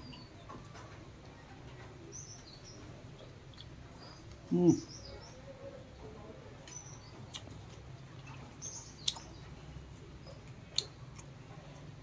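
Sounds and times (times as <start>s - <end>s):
man chewing: 6.6s - 9.3s, 10.1s - 12.0s
lip-smacking sounds: 6.7s - 9.3s, 10.4s - 11.4s.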